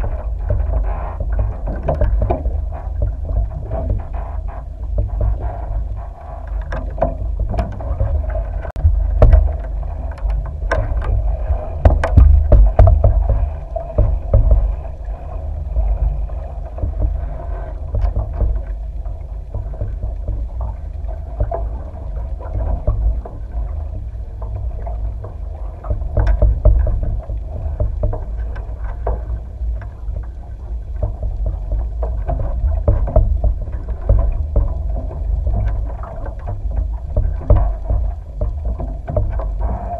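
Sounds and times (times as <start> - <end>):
sharp knocks and clicks: 0.0 - 5.7, 6.5 - 14.8, 25.9 - 30.0, 31.0 - 39.9
muffled underwater water rumble: 0.0 - 39.9.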